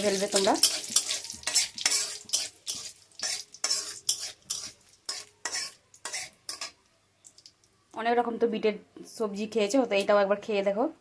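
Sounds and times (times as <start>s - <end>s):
metal spatula scraping a pan: 0.0s - 6.8s
spices frying in hot oil: 0.0s - 7.8s.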